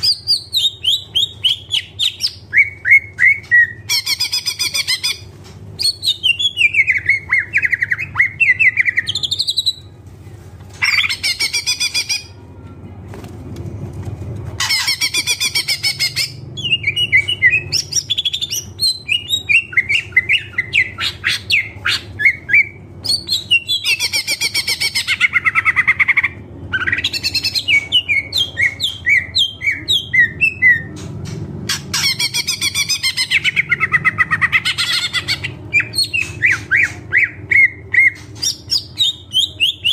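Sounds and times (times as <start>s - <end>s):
bird singing chirps and trills: 14.6s - 31.1s.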